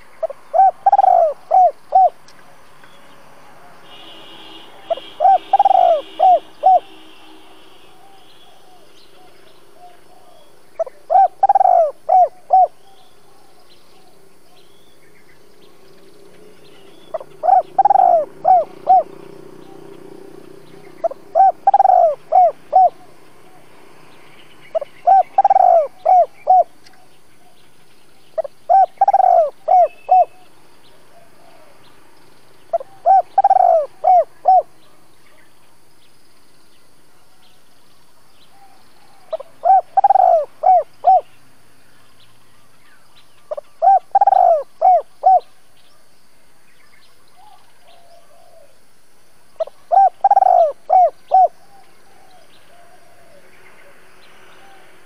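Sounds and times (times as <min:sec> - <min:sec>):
dove cooing: 0:00.2 - 0:02.2, 0:04.9 - 0:07.0, 0:08.0 - 0:14.1, 0:17.1 - 0:23.7, 0:24.7 - 0:27.5, 0:28.4 - 0:30.4, 0:31.1 - 0:31.9, 0:32.7 - 0:34.8, 0:38.5 - 0:41.3, 0:43.5 - 0:45.5, 0:47.4 - 0:48.8, 0:49.6 - 0:55.0.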